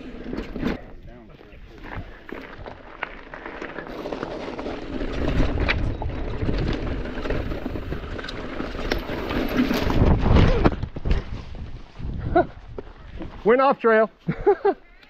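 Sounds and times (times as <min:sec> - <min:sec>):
bike tyres crunching over stones: 0:00.9 - 0:13.5
bike rattling: 0:01.8 - 0:13.4
wind rumble on microphone: 0:04.8 - 0:13.3.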